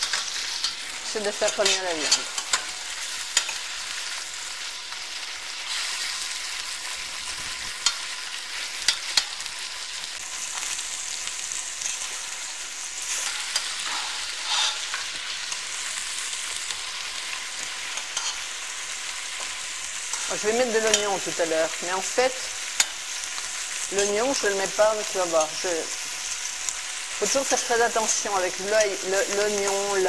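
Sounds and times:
meat sizzling in oil: 0.0 - 30.0
metal fork clicking on pan: 1.4 - 2.7, 3.4 - 3.6, 7.8 - 8.0, 8.8 - 9.4, 18.0 - 18.4, 22.8 - 23.0.

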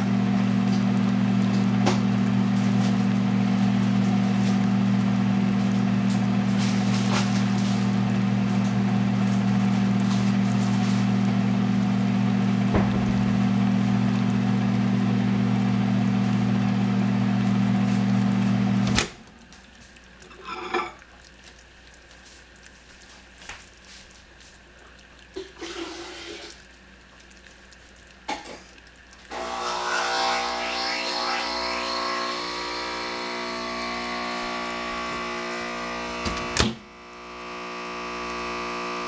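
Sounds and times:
appliance motor humming: 0.0 - 19.8, 29.3 - 39.0
sugar bubbling in saucepan: 0.0 - 29.3, 31.2 - 36.2, 36.8 - 39.0.

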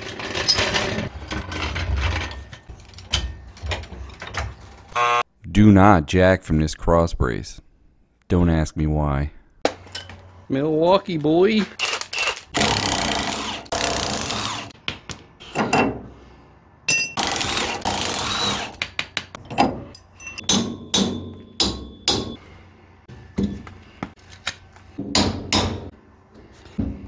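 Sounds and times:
metal knocks and clanks: 0.2 - 4.9
impact wrench hammering: 20.4 - 22.4, 25.0 - 25.9.

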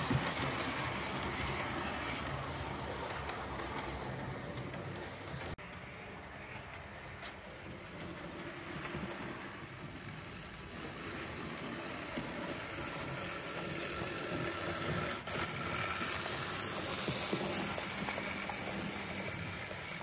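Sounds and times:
model steam train rolling rumble: 0.0 - 20.0
steam hiss: 7.8 - 20.0.

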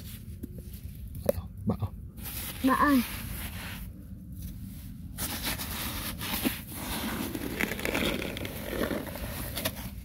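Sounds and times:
hand digging in gritty soil: 2.2 - 10.0.

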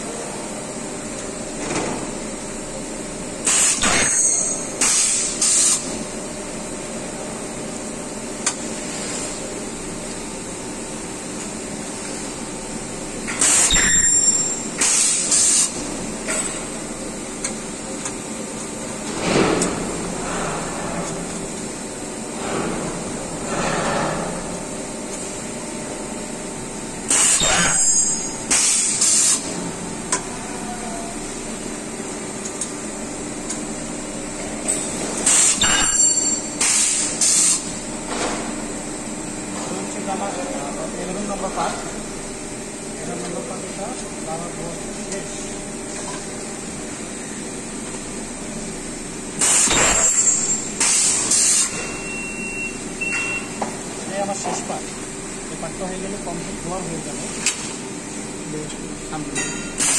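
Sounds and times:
steady factory hum: 0.0 - 59.9
welding machine burst with ringing tone: 3.5 - 5.8, 13.4 - 15.7, 27.1 - 29.4, 35.3 - 37.6, 49.4 - 53.5
welding machine hissing bursts: 4.8 - 5.8, 14.8 - 15.8, 28.5 - 29.4.

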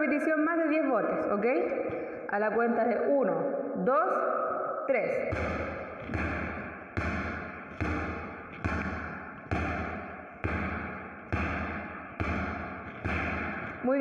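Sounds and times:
basketball bouncing on tiled floor: 5.3 - 14.0.

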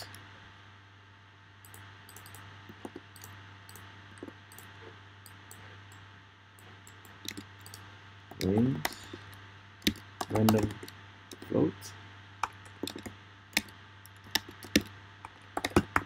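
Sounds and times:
low hum: 0.0 - 16.0
typing on a keyboard: 12.4 - 16.0.

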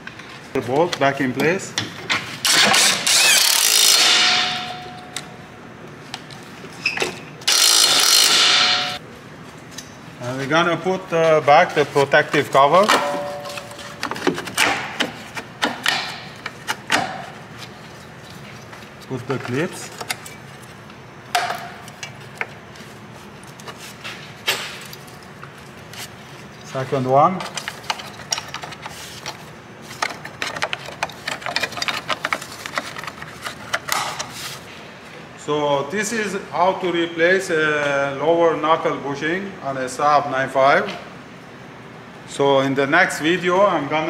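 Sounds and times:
impact wrench hammering: 2.5 - 5.3, 7.5 - 9.0, 12.8 - 13.8, 14.6 - 17.2.

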